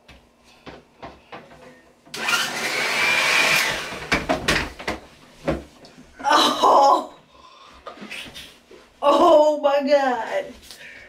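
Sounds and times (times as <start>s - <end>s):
hair dryer running: 2.2s - 4.3s.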